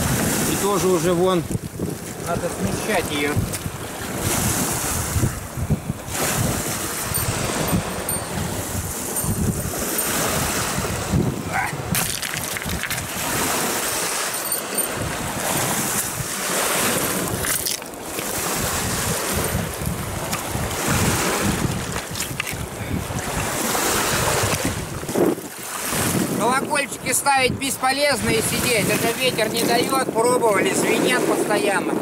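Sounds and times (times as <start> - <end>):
wind buffeting microphone: 0.0 - 32.0
waves breaking on pebbles: 11.9 - 26.4.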